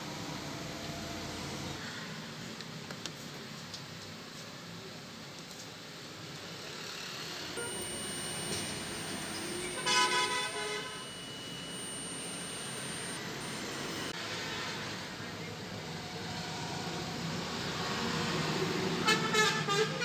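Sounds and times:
faint thin high tone: 7.6s - 14.1s
vehicle horn toot: 9.8s - 11.0s
street traffic noise: 14.2s - 20.0s.

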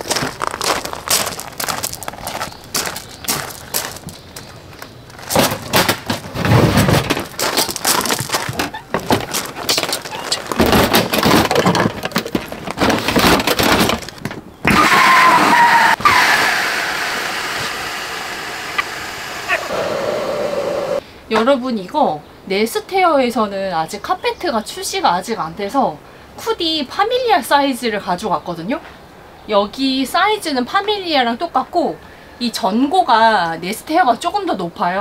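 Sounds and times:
air rushing from mattress pump: 16.0s - 21.0s.

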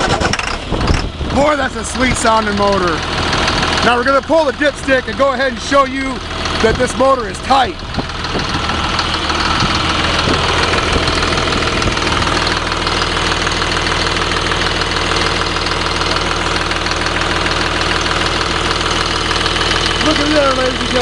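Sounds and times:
diesel engine idling: 0.0s - 21.0s
person talking: 1.4s - 3.0s, 3.8s - 7.8s, 20.0s - 21.0s.

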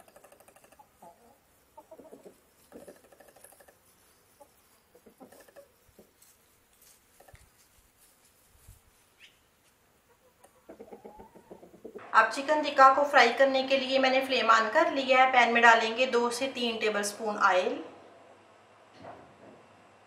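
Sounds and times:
chickens clucking: 0.0s - 7.6s, 9.1s - 12.1s.

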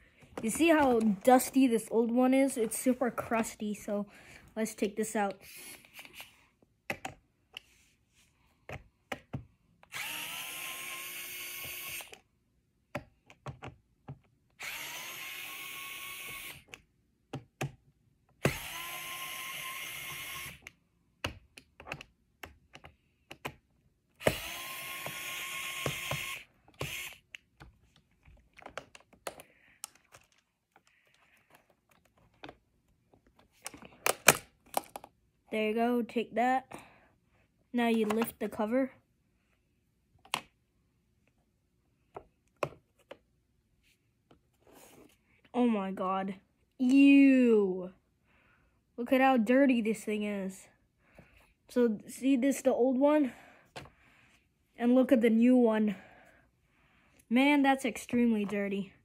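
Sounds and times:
electric screwdriver spinning: 9.9s - 12.2s, 14.6s - 16.8s, 18.4s - 20.7s, 24.2s - 27.4s.

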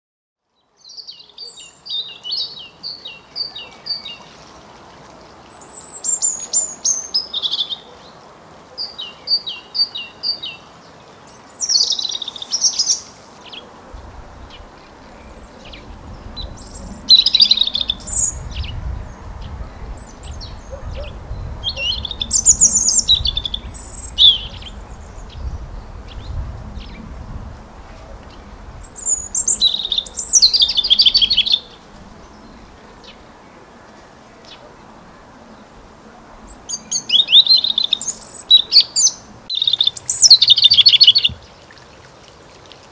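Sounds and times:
robin singing: 0.6s - 27.2s, 28.0s - 35.7s, 36.5s - 41.7s
low rumble: 14.0s - 29.0s.

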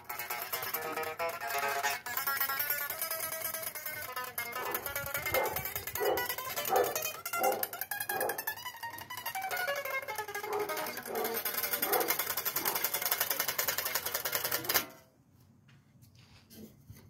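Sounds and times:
electric guitar rapid picking: 0.0s - 14.9s.

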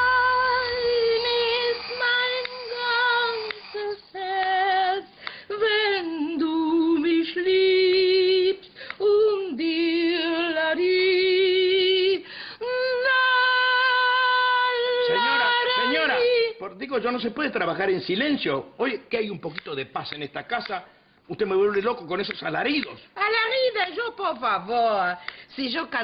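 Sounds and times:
woman singing unaccompanied: 0.0s - 16.6s.

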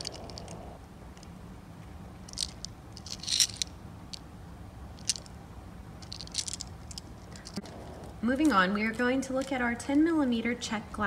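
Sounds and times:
faint steady hum: 0.0s - 11.0s
glass beads rattling in plastic box: 2.3s - 3.7s, 6.0s - 7.6s.

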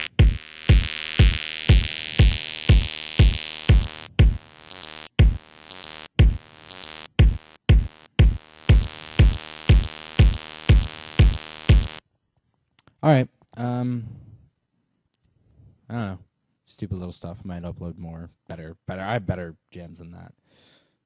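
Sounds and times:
drum machine kick: 0.0s - 12.0s
sustained synth chord: 0.0s - 12.0s.

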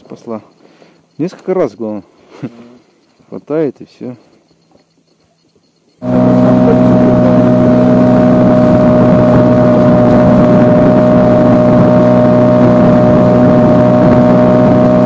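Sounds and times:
outboard motor droning: 6.0s - 15.0s.

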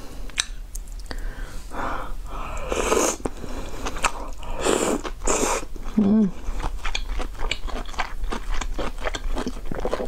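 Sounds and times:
noodles slurped and chewed: 2.5s - 10.0s.

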